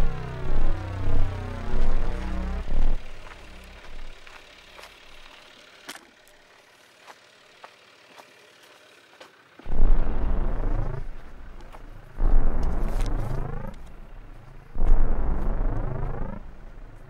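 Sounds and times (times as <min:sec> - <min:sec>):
experimental electronic music: 0:00.0 - 0:04.4, 0:09.7 - 0:13.9, 0:14.6 - 0:16.6
loud low rumble: 0:00.0 - 0:04.4, 0:09.7 - 0:17.0
deep throbbing low pulses: 0:00.0 - 0:05.4, 0:09.7 - 0:17.0.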